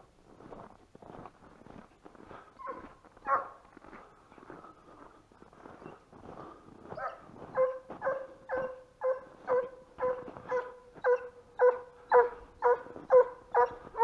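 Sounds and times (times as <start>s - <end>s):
hound baying: 2.6s - 3.7s, 6.8s - 14.0s.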